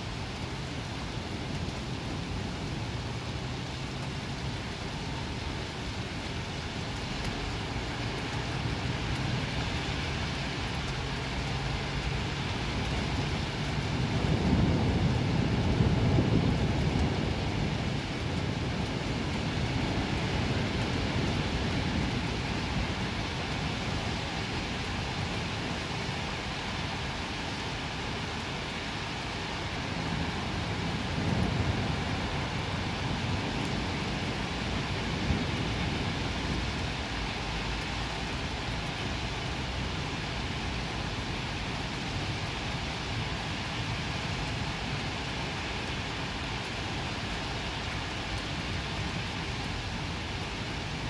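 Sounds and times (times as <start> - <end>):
steady rain hissing: 0.0 - 51.0
low roll of thunder: 12.6 - 23.8, 29.8 - 41.3.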